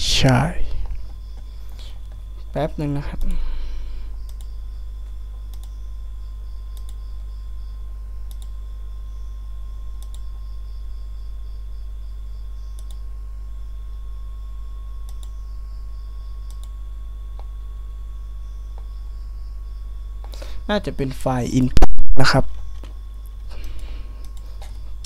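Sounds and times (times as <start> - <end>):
faint high whine: 0.0 - 25.0
low electrical hum: 0.0 - 25.0
computer clicks: 4.2 - 5.8, 6.7 - 7.3, 8.2 - 8.6, 10.0 - 10.3, 12.7 - 13.0, 15.0 - 15.4, 16.5 - 16.8, 22.7 - 24.8.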